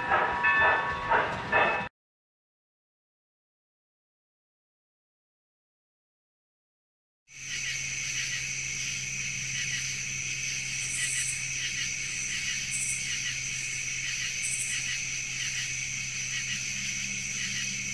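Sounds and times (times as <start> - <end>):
insects chirring: 7.3 - 17.9.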